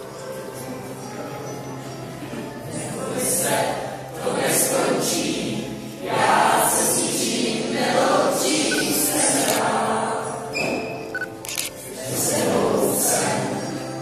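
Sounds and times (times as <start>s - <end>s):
teenagers singing in chorus: 2.6s - 11.0s, 11.9s - 14.0s.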